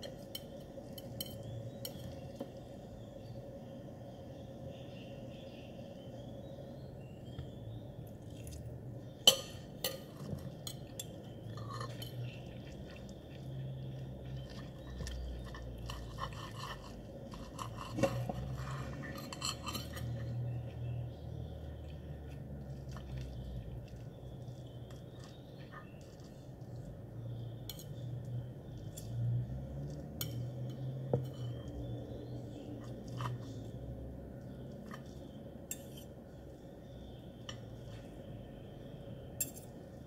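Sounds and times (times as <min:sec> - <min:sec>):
low steady hum: 0:00.0 - 0:40.0
cutlery scraping a ceramic plate: 0:09.3 - 0:12.7, 0:14.4 - 0:20.5, 0:34.8 - 0:36.2.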